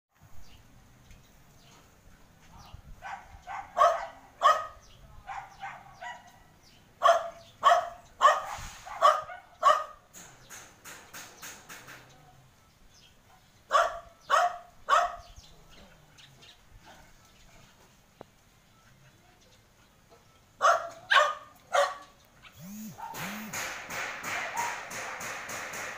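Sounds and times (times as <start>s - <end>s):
dog barking: 3.0s - 10.1s, 13.7s - 15.4s, 20.6s - 22.2s, 23.0s - 23.4s, 24.3s - 25.0s.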